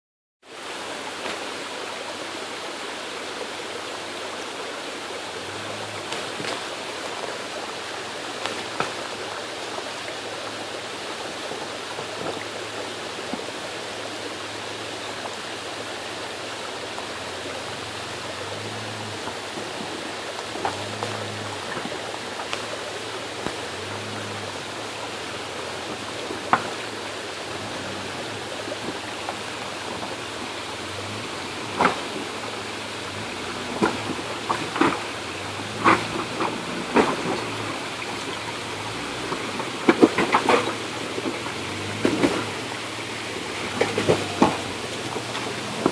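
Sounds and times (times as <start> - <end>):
steady rushing hiss: 0.5 - 45.9
engine revving at low revs: 5.3 - 45.9.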